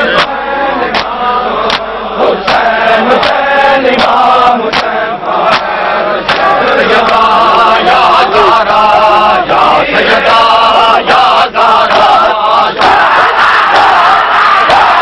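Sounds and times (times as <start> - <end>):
men chanting: 0.0 - 15.0
hands slapping bare chests: 0.2 - 3.4, 4.0 - 7.2.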